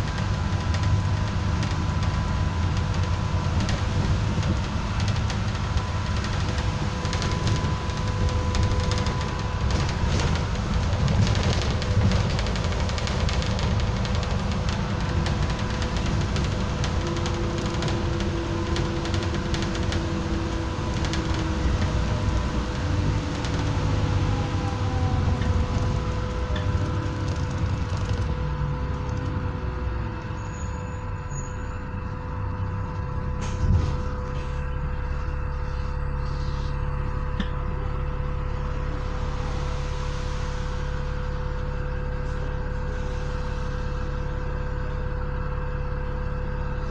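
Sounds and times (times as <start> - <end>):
bus engine and road noise: 0.0 - 46.9
bus engine idling: 0.0 - 46.9
steady whine: 0.0 - 46.9
falling whine of braking bus: 14.6 - 46.9.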